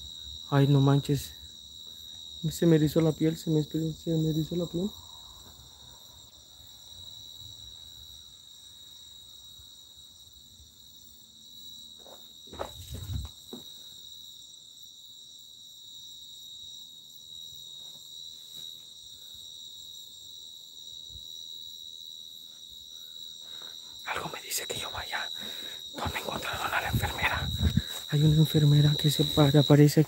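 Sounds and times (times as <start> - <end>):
crickets chirring: 0.0 - 30.0
scuffing noise: 12.0 - 13.4.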